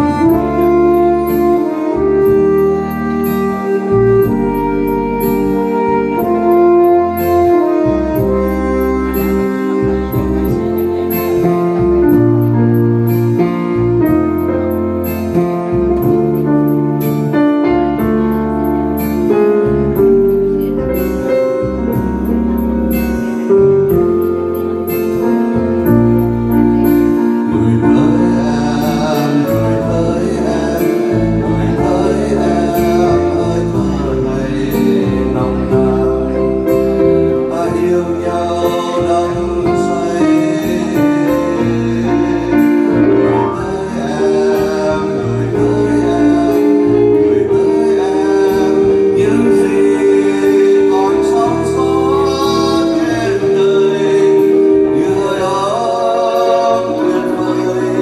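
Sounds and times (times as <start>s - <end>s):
digital piano playing chords: 0.0s - 58.0s
man singing: 27.0s - 58.0s.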